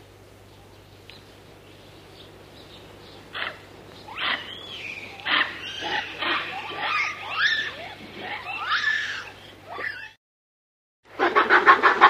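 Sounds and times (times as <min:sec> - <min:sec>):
monkey calling sharply: 0:03.3 - 0:10.2.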